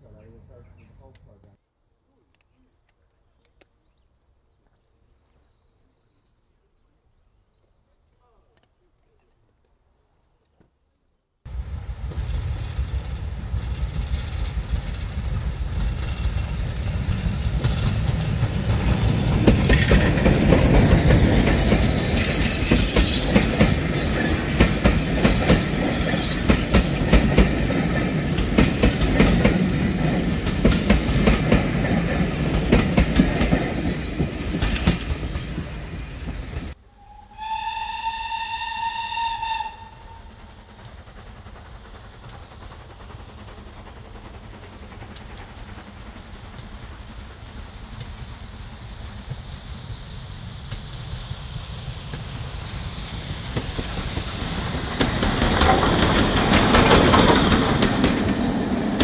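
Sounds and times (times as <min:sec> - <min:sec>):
train wheels clattering over rails: 0:12.0 - 0:36.8, 0:39.8 - 0:50.0, 0:52.0 - 0:59.0
steam locomotive whistle: 0:36.8 - 0:40.4.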